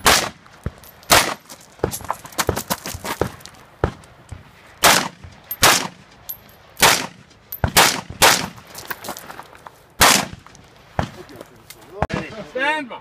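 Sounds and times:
rifle shots with echo: 0.0s - 0.4s, 1.1s - 1.4s, 4.8s - 6.0s, 6.8s - 8.6s, 10.0s - 10.4s.

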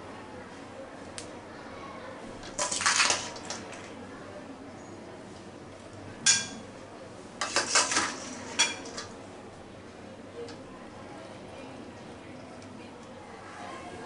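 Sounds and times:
spoon clinking on metal pan: 6.2s - 6.7s, 7.4s - 9.1s
metal spoon scraping pan: 7.4s - 9.1s.

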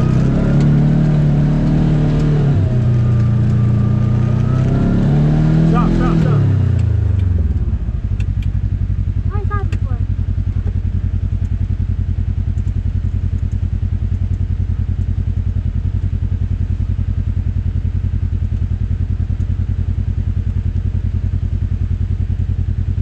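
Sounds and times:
engine idling: 5.4s - 23.0s.

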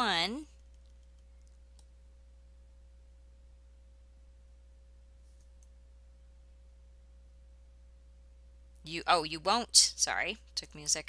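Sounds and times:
faint steady pure tone: 0.0s - 11.0s
steady low hum: 0.0s - 11.0s
computer keyboard clicks: 0.6s - 1.9s.

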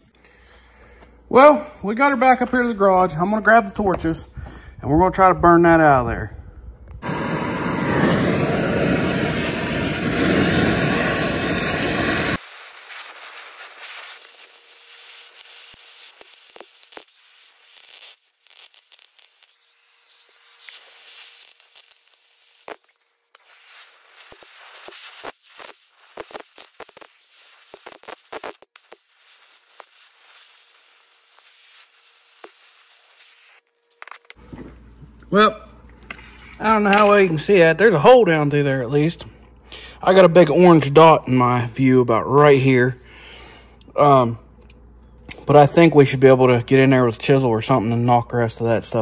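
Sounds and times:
cutting torch hissing roar: 7.0s - 18.0s
burning metal crackling: 7.0s - 39.2s.

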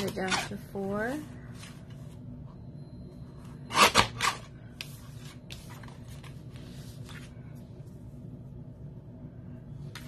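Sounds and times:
paper rustling: 4.8s - 7.6s.

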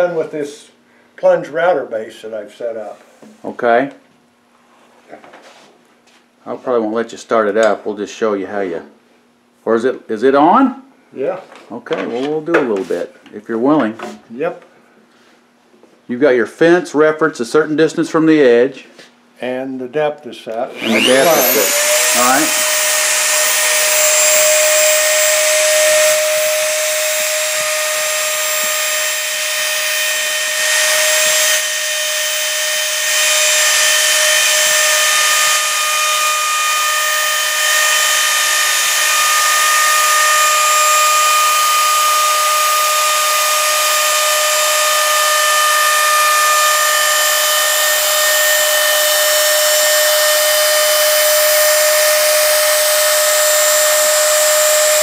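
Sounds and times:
rotary tool whining: 20.7s - 55.0s.

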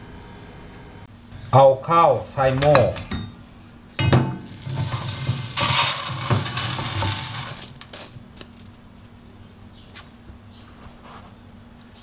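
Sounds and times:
strainer knocks: 4.0s - 7.8s
wet rice pouring from strainer: 4.5s - 7.8s.

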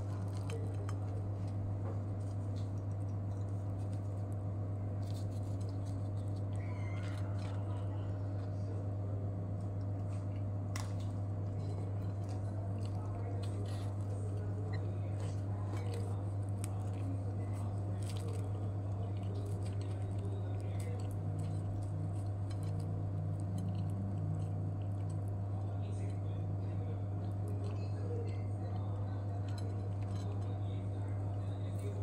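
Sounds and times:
low electrical hum: 0.0s - 32.0s
flatbread rustling on ceramic plate: 5.0s - 6.5s.

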